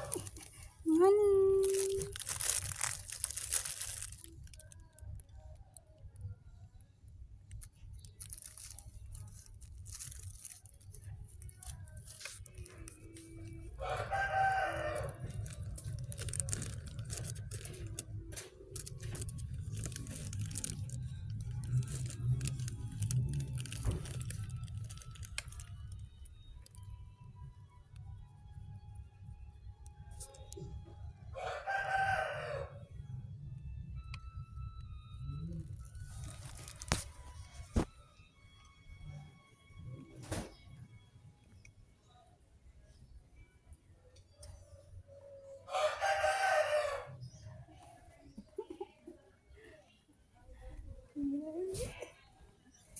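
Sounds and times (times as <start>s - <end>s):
rustling of plastic bags: 0.0s - 5.3s, 7.5s - 26.8s, 35.7s - 37.9s
rooster crowing: 13.8s - 15.4s, 31.3s - 32.8s, 45.6s - 47.2s.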